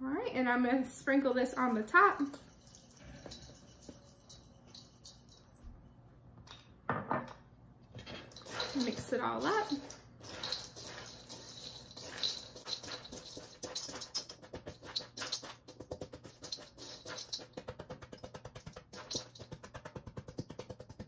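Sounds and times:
spatula scraping seeds in metal bowl: 0:01.6 - 0:05.4, 0:08.0 - 0:18.0, 0:18.7 - 0:19.5.

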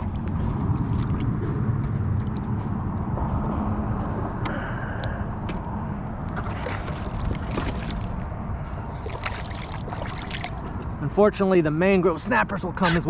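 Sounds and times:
water splashing against kayak: 0:00.0 - 0:01.4, 0:06.3 - 0:11.0
wind rumble on microphone: 0:00.0 - 0:12.8.

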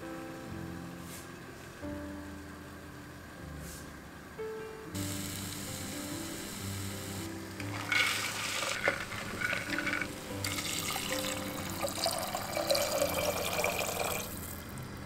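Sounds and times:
soft background music: 0:00.0 - 0:15.0
dried peas rattling into a pot: 0:07.6 - 0:14.6
water pouring into a pot: 0:07.6 - 0:14.8.

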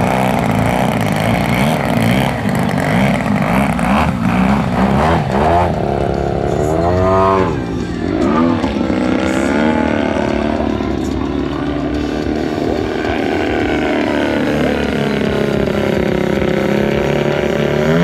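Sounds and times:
model plane engine: 0:00.0 - 0:18.0.

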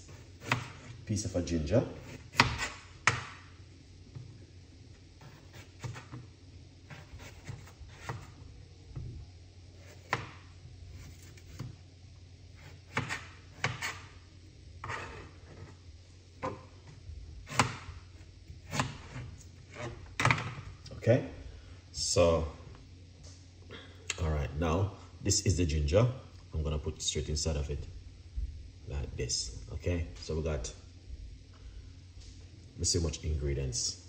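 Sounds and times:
low room hum: 0:00.0 - 0:34.0
knife scrapes: 0:05.2 - 0:06.2, 0:06.8 - 0:08.4, 0:10.9 - 0:11.8, 0:12.5 - 0:14.2, 0:14.8 - 0:15.8, 0:17.5 - 0:20.6.

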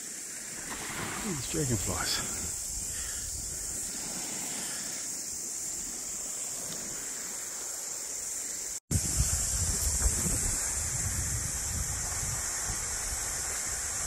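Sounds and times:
waves lapping on sand: 0:00.0 - 0:08.8
steady high hiss: 0:00.0 - 0:14.0
wind on microphone: 0:01.9 - 0:04.4, 0:08.9 - 0:14.0.

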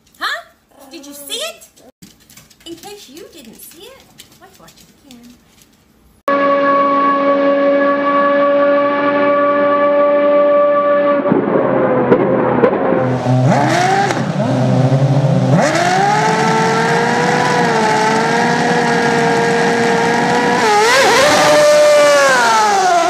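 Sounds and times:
motorcycle engine: 0:06.3 - 0:23.0.

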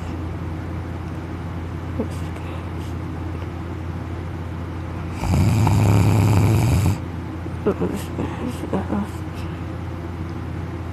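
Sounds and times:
man snoring loudly: 0:05.1 - 0:07.0.

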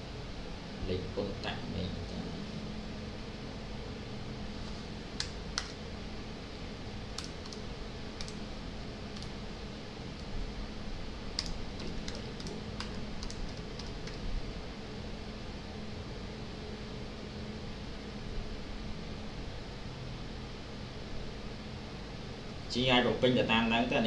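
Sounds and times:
low hum and hiss: 0:00.0 - 0:24.0
keyboard keystroke clicks: 0:05.2 - 0:05.8, 0:07.2 - 0:07.6, 0:11.4 - 0:14.2.

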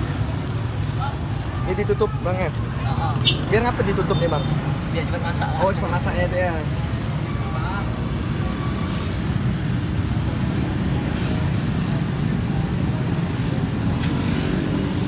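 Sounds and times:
road traffic rumble: 0:00.0 - 0:15.0
sharp click: 0:14.0 - 0:14.2.

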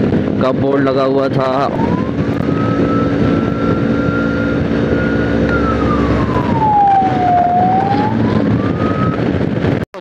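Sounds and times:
motorcycle engine hum: 0:00.0 - 0:10.0
wind and road noise: 0:00.0 - 0:10.0
siren-like tone: 0:01.6 - 0:09.3.

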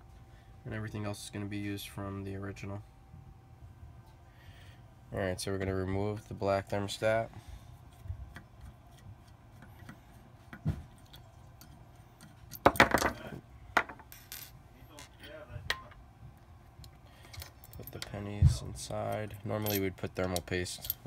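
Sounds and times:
rattling clinks: 0:19.1 - 0:21.0.

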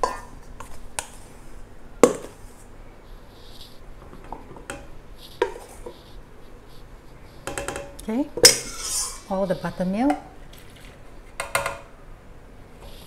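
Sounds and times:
kitchen bowls and utensils clinking: 0:07.5 - 0:11.7.

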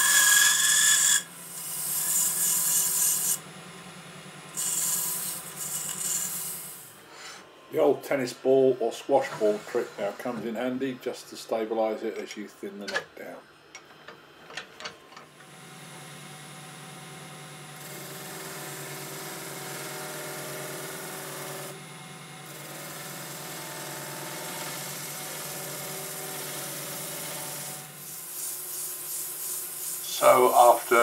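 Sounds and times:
chisel cutting wood hiss: 0:00.0 - 0:03.4, 0:04.6 - 0:07.4, 0:27.5 - 0:31.0
lathe motor humming: 0:00.0 - 0:03.4.

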